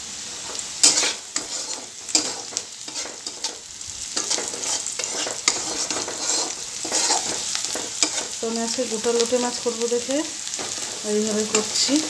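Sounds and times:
onion sizzling in hot oil: 0.0s - 12.0s
spatula scraping a pan: 0.2s - 8.8s, 10.4s - 12.0s.

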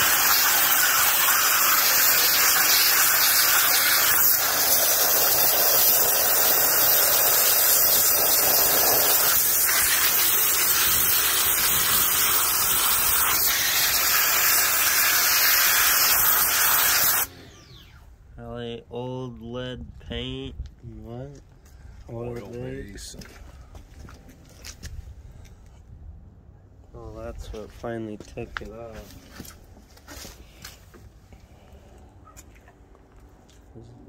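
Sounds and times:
high-pressure spray hissing: 0.0s - 17.3s.

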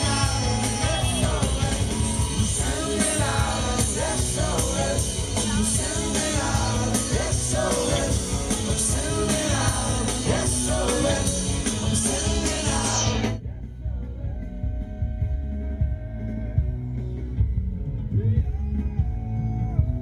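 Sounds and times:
electric guitar: 0.0s - 13.4s
bass: 0.0s - 20.0s
drums and cymbals: 0.0s - 20.0s
lead vocal: 0.0s - 20.0s.

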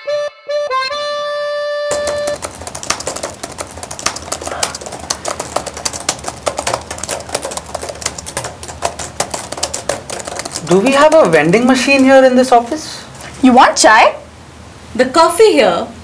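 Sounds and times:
harmonica note: 0.0s - 2.4s
laptop keyboard typing: 1.9s - 12.6s.

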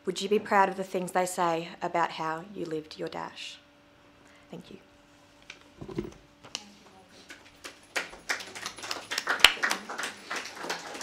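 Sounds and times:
audience clapping: 7.3s - 11.0s.

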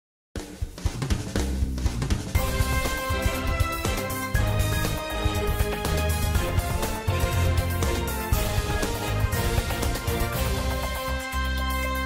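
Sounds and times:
news theme music: 0.8s - 12.0s.

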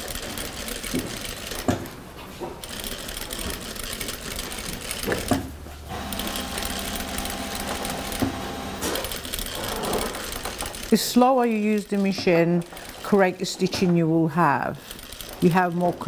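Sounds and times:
sewing machine stitching: 0.0s - 1.8s, 2.6s - 13.9s, 14.8s - 16.0s.

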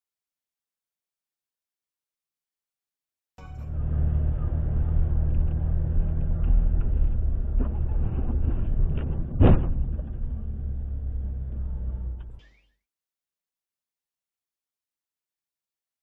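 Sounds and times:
car engine and tyres rumbling: 3.4s - 12.4s
car collision thump: 8.5s - 10.2s.

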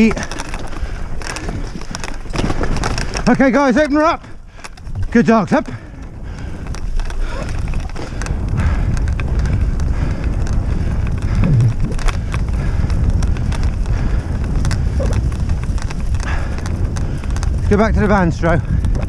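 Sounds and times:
wheeled rig rattling over grass: 0.0s - 19.0s
wind buffeting microphone: 0.0s - 19.0s.

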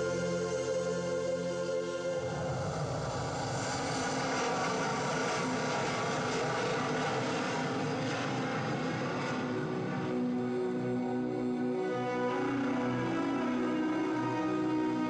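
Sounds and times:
propeller aircraft drone: 0.0s - 15.0s.

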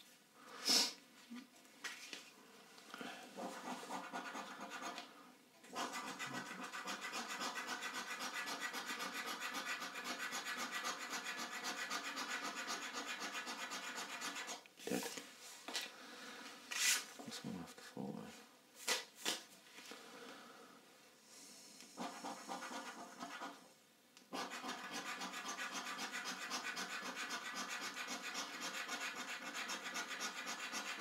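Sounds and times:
coin scraping scratchcard: 5.8s - 14.6s, 24.4s - 31.0s.

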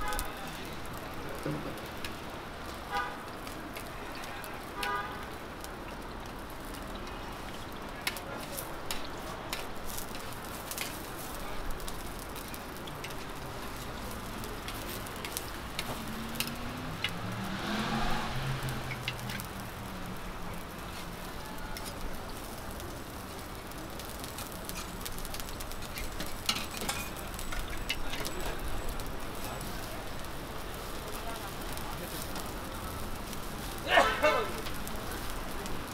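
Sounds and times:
pancakes sizzling in oil: 0.0s - 35.9s
metal spatula scraping griddle: 26.0s - 28.2s.

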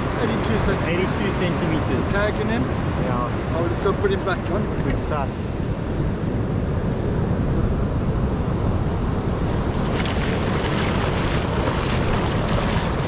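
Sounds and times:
surf breaking on beach: 9.3s - 13.0s
feet splashing through water: 9.5s - 13.0s.

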